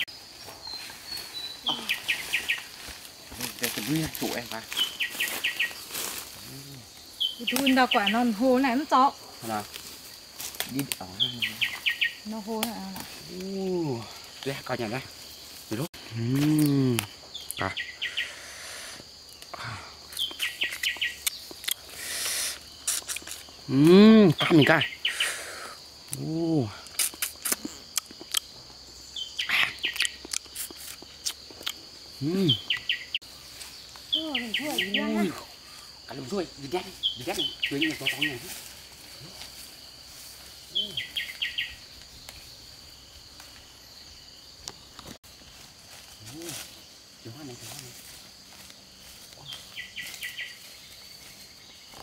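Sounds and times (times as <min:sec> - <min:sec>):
bird chirping: 0:00.0 - 0:02.8, 0:03.9 - 0:05.9, 0:06.6 - 0:08.8, 0:10.7 - 0:12.5, 0:16.6 - 0:18.5, 0:20.1 - 0:21.9, 0:22.5 - 0:25.4, 0:27.3 - 0:30.4, 0:32.2 - 0:38.5, 0:40.6 - 0:42.6, 0:49.4 - 0:52.0
insect buzz: 0:00.0 - 0:52.0.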